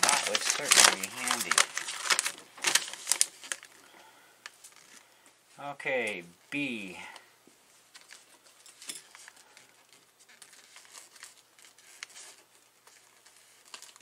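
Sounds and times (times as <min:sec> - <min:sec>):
paper rustling and crinkling: 0:00.0 - 0:03.8, 0:04.5 - 0:05.0, 0:07.8 - 0:14.0.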